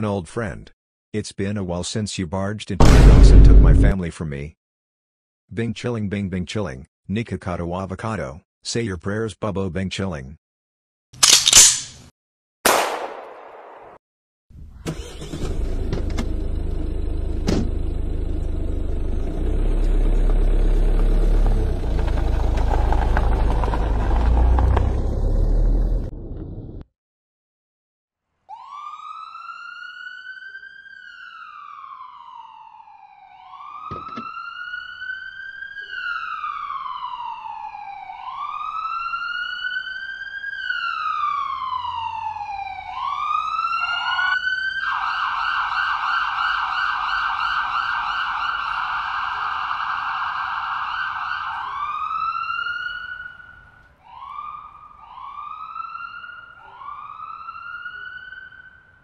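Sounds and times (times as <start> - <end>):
ambulance siren wailing: 28.5 - 59.0.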